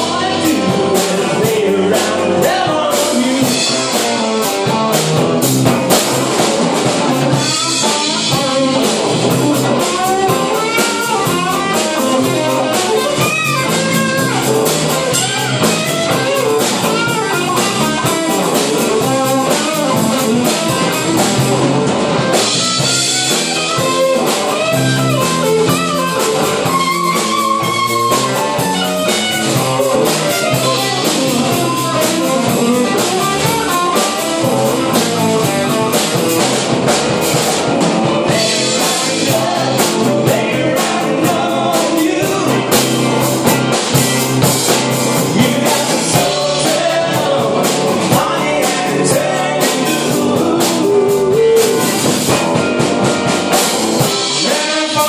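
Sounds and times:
drum kit: 0:00.0 - 0:55.0
electric bass: 0:00.0 - 0:55.0
electric guitar: 0:00.0 - 0:55.0.

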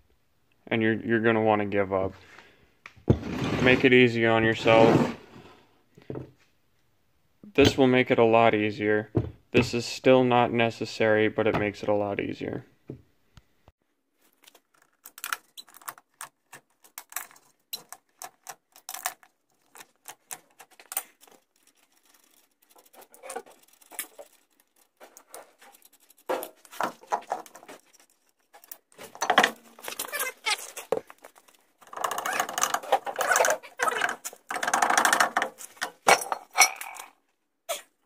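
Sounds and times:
wheel scraping and knocking: 0:03.0 - 0:05.3, 0:19.8 - 0:36.6
metallic clicks and rattles: 0:14.5 - 0:37.2.

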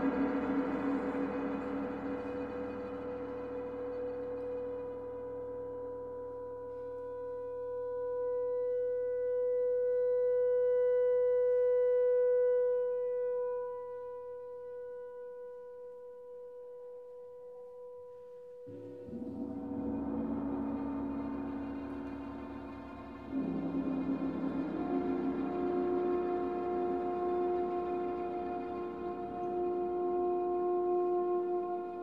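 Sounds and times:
orchestra holding long note: 0:00.0 - 0:06.0, 0:18.7 - 0:32.0
lower orchestral chord: 0:00.0 - 0:15.0, 0:18.6 - 0:32.0.

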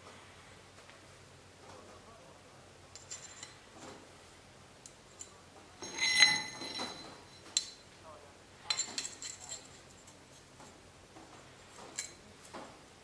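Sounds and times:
steel ruler clinking on anvil: 0:05.2 - 0:07.8.

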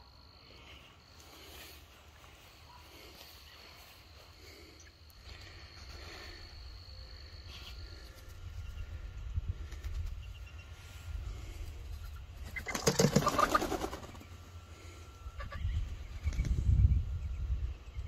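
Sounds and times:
chicken flapping wings: 0:09.6 - 0:10.2, 0:11.9 - 0:14.3.

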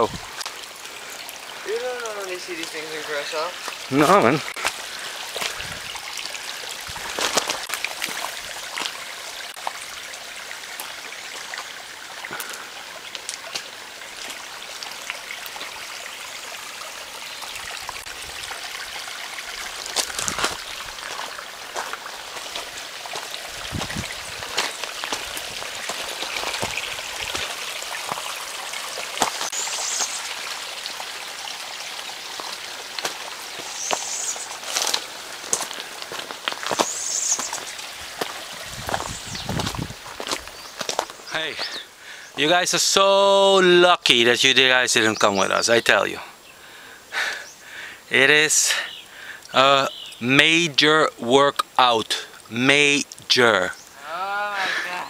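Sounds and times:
small stream trickling: 0:00.0 - 0:55.0
footsteps crunching on leaf litter: 0:06.9 - 0:09.0, 0:19.8 - 0:27.5, 0:33.0 - 0:41.8.

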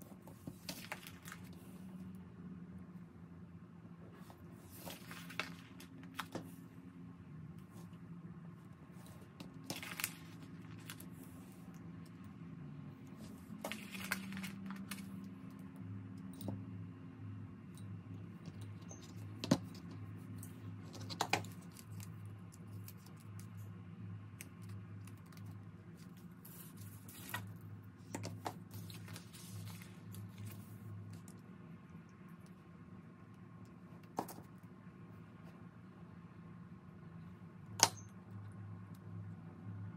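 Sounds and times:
hands handling paper and glass: 0:00.2 - 0:01.7, 0:04.6 - 0:06.6, 0:09.0 - 0:11.2, 0:13.2 - 0:15.2.

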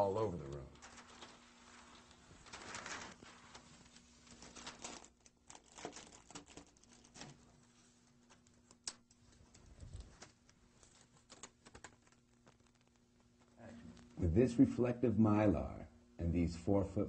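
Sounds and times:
plastic sheeting crinkling: 0:00.4 - 0:14.2
scissors cutting plastic sheeting: 0:04.3 - 0:07.4.

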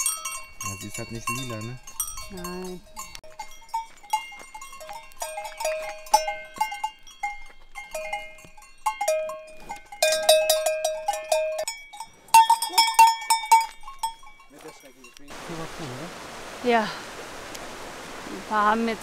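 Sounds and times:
cowbells clanging: 0:00.0 - 0:15.4.

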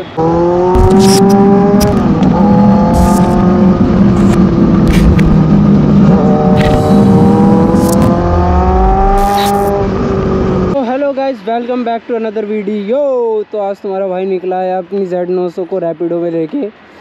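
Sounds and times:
motorcycle engine revving: 0:00.0 - 0:10.8.

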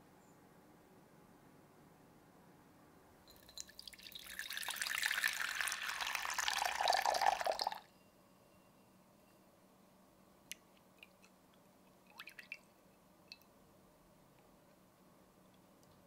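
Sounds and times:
water pouring into cup: 0:03.3 - 0:07.8.

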